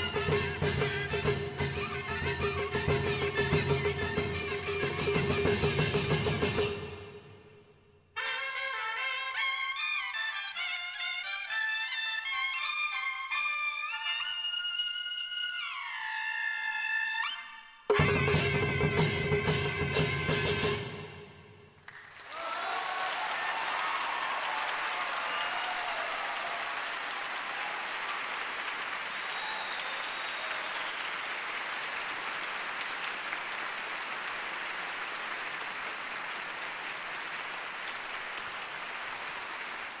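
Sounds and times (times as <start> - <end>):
audience applauding: 21.8 - 40.0
shouted cheers: 22.2 - 31.6.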